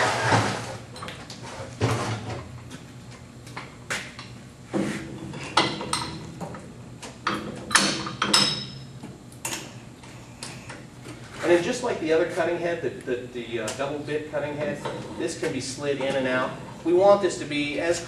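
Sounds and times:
metal clanks and clinks: 7.3s - 8.9s.

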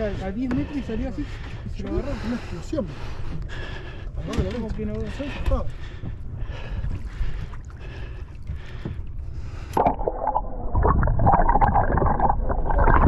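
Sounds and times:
water sloshing against hull: 0.0s - 13.0s
low rumble: 5.8s - 13.0s.

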